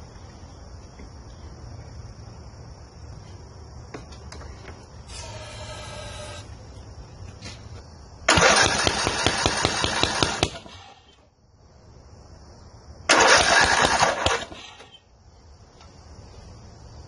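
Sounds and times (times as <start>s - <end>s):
lawn mower engine cranking: 8.3s - 10.8s, 13.1s - 14.9s.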